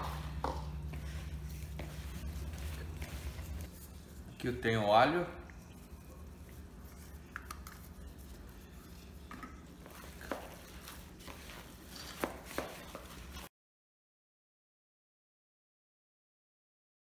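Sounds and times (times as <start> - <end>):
hands mixing meat in bowl: 0.0 - 13.5
steady low hum: 0.0 - 13.5.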